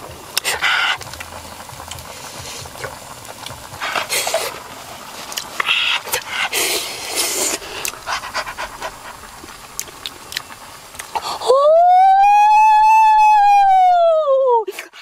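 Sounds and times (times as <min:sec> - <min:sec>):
man howling like a dog: 0:11.4 - 0:14.7.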